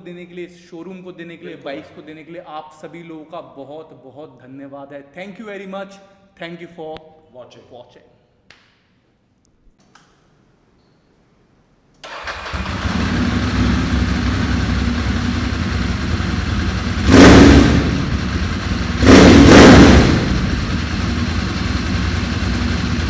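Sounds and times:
motorcycle engine idling and revving: 12.2 - 23.0.

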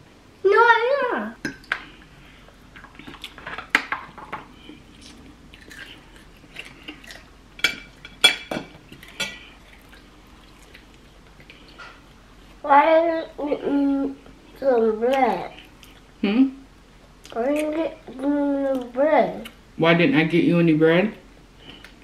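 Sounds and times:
quiet chewing: 4.6 - 7.3, 8.9 - 12.2, 15.1 - 16.2.

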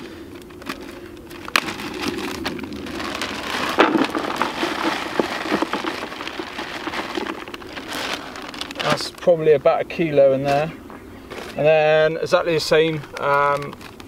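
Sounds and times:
bait crumbs pouring into bucket: 2.0 - 8.8.

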